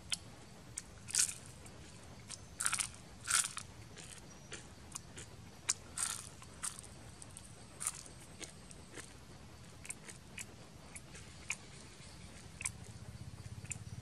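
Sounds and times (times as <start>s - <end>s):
crisp chewing crunches: 0.8s - 12.9s
wet mouth clicks: 9.8s - 11.7s, 12.6s - 12.8s.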